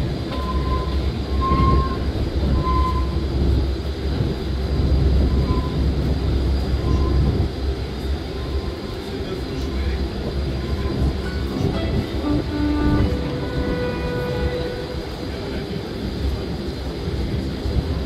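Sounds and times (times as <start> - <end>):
train running low rumble: 0.0 - 18.0
wheels squealing: 0.3 - 3.2, 5.3 - 5.9.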